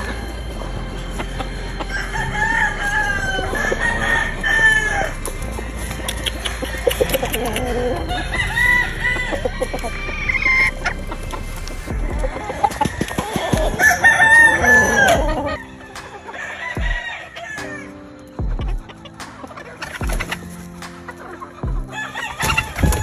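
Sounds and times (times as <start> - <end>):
roosters crowing: 0.0 - 19.0, 21.3 - 23.0
hens clucking: 0.0 - 23.0.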